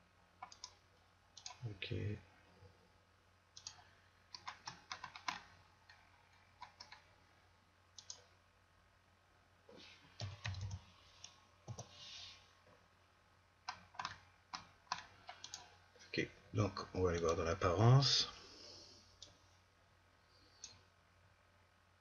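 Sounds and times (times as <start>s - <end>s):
mouse and keyboard clicking: 0.4s - 0.8s, 1.4s - 1.6s, 3.6s - 6.0s, 6.6s - 7.1s, 8.0s - 8.3s, 10.2s - 12.0s, 13.7s - 15.7s.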